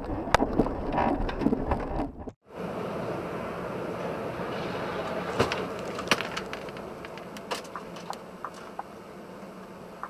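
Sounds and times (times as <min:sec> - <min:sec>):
car engine and road noise: 0:01.5 - 0:10.0.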